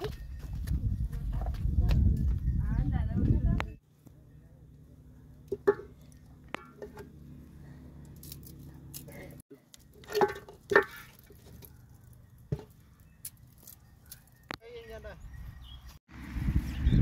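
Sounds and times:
wooden stick scraping a metal pot: 8.1 - 14.6.

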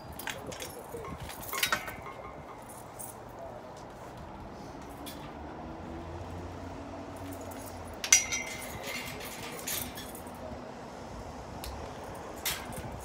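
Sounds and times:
sharp metallic clink: 0.1 - 3.3, 7.7 - 10.4.

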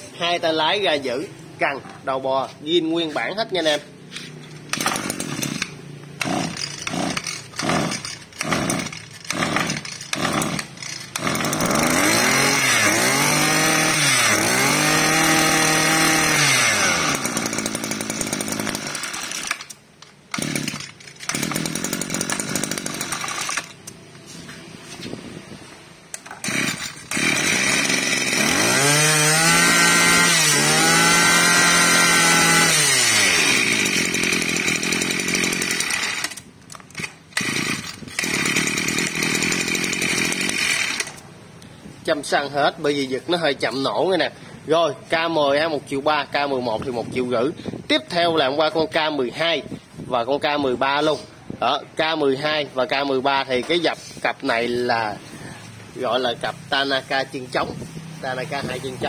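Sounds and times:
recoil starter pulls: 3.2 - 24.0, 26.1 - 41.3
two-stroke engine revving: 3.7 - 19.7, 20.3 - 23.8, 26.4 - 41.2.

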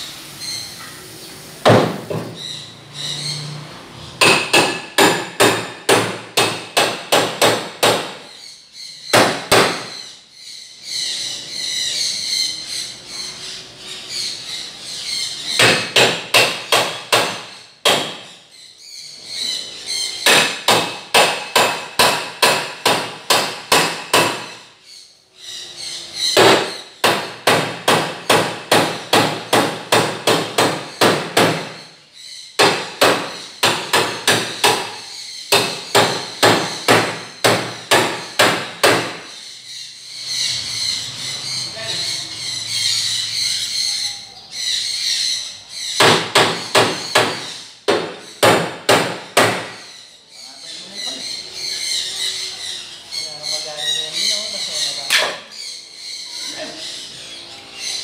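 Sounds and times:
steady hissing noise: 0.0 - 2.9.

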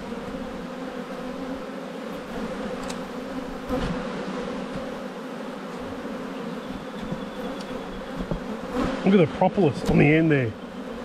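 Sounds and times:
bees buzzing: 0.0 - 11.0
hive tool knocking on wood: 3.7 - 5.0, 6.7 - 9.0, 9.8 - 10.1.

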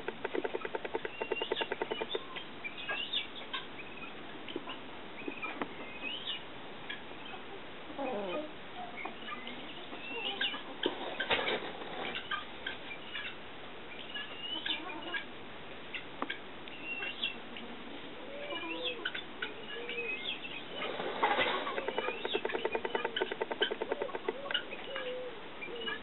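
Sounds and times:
turkey feathers rattling: 0.0 - 2.2, 20.8 - 24.6
turkey soft calls and chirps: 0.1 - 15.3, 15.9 - 26.0.

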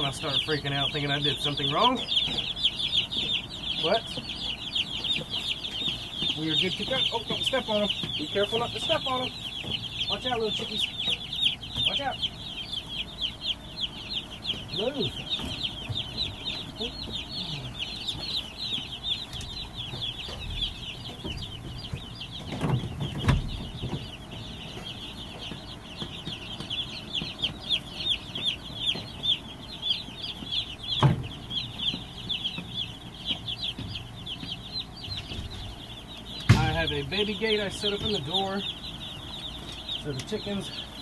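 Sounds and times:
chicks peeping: 0.0 - 41.0
dull knocks: 18.0 - 29.4, 30.4 - 37.0.

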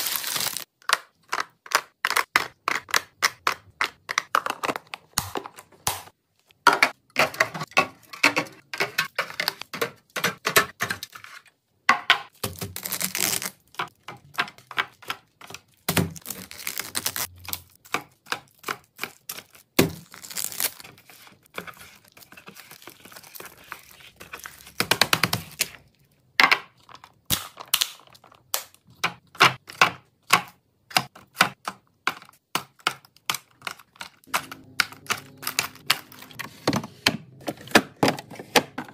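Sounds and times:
packaging rustling: 0.0 - 0.7, 16.2 - 17.3
packages clicking into plastic bins: 32.8 - 38.9.

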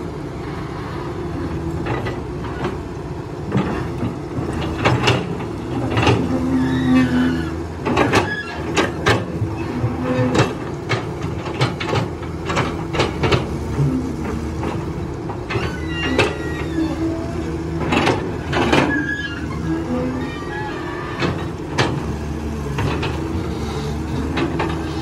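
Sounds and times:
excavator diesel engine: 0.0 - 25.0
knocks and clanks of digging: 3.5 - 6.5, 7.8 - 16.4, 17.7 - 19.5, 21.2 - 25.0.

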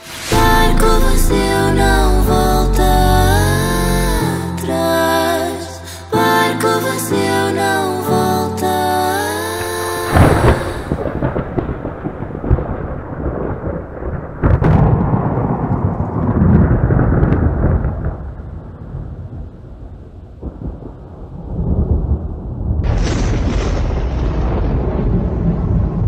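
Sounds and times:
thunder crack: 0.0 - 4.4, 10.0 - 26.0
thunder rumbling: 0.0 - 5.2, 9.6 - 26.0.

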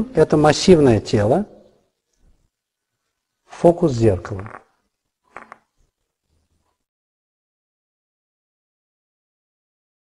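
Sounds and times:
faint room hiss: 0.0 - 6.9.

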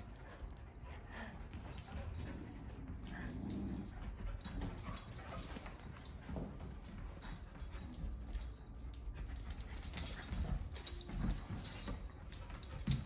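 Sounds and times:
dog growling: 2.3 - 4.0.

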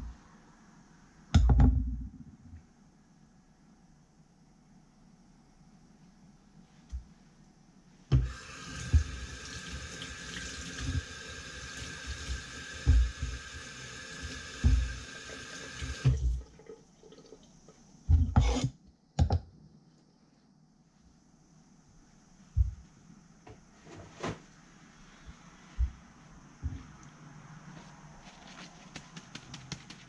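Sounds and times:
tap running into sink: 8.2 - 9.4, 14.3 - 15.0.

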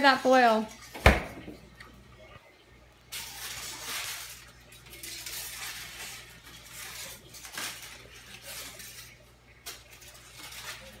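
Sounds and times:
aluminium foil crinkling: 2.9 - 11.0.

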